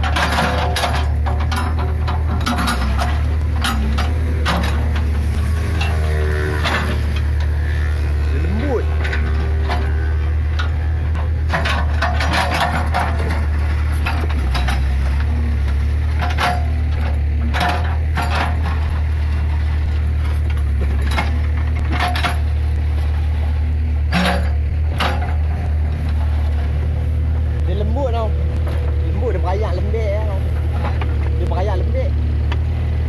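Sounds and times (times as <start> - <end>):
stone and metal clanking: 0.0 - 7.6, 8.8 - 22.6, 24.1 - 26.2
diesel engine running: 0.0 - 33.0.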